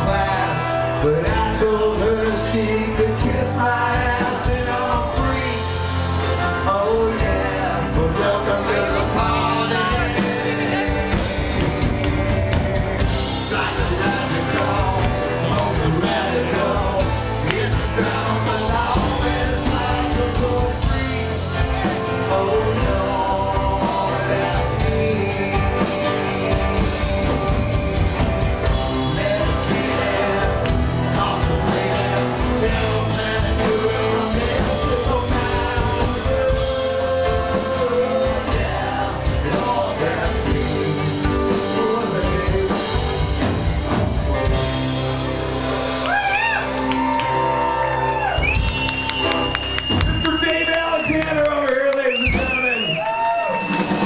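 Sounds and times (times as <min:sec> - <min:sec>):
voices singing along: 0:00.0 - 0:27.9, 0:28.5 - 0:43.2
live rock band playing: 0:00.0 - 0:54.0.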